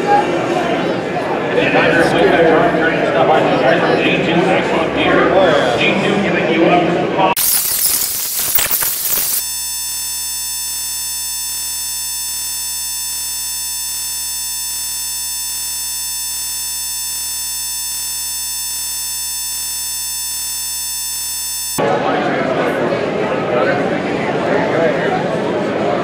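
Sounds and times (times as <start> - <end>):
steady electronic buzz: 7.4 - 21.8.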